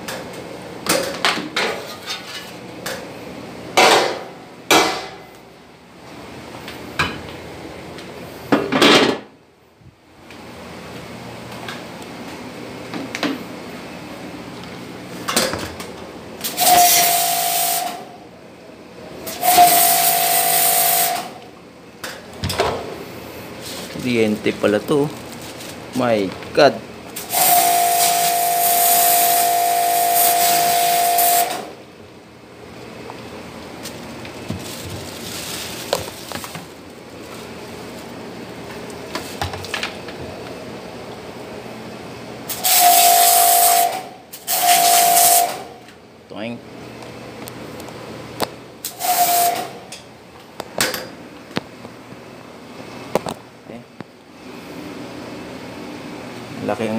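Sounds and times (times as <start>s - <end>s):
foam spray gun hissing: 16.4s - 18.0s, 19.3s - 21.3s, 27.2s - 31.7s, 48.8s - 49.8s.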